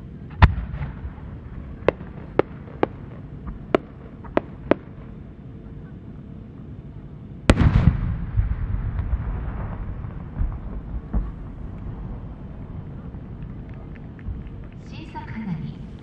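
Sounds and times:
firework sharp pops: 0.3s - 1.2s, 1.8s - 5.1s, 7.5s - 14.9s
firework bang with rumble: 0.4s - 1.2s, 7.5s - 13.6s.

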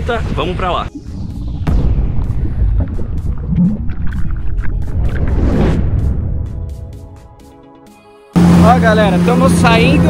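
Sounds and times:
deep rumble: 0.0s - 7.2s
intro music: 0.1s - 10.0s
water splash effects: 0.2s - 6.4s.

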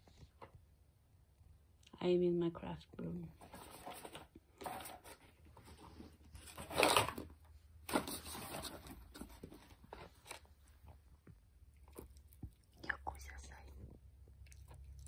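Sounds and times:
dog crunching a chew stick: 11.7s - 13.0s, 14.4s - 15.0s.

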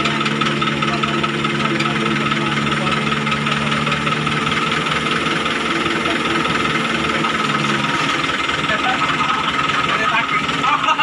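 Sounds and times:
diesel engines droning: 0.0s - 11.0s
steady higher whine: 0.0s - 11.0s.

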